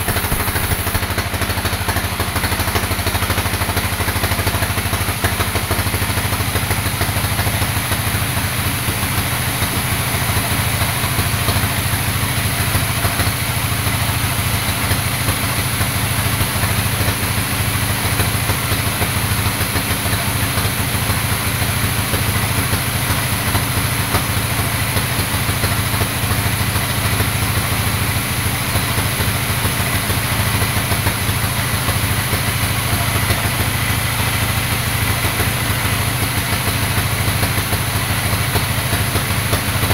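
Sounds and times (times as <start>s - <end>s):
band sawmill cutting log: 0.0s - 3.5s.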